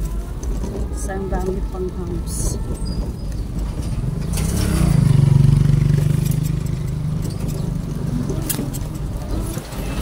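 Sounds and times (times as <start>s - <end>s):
motor vehicle engine: 0.0s - 10.0s
road noise: 0.0s - 10.0s.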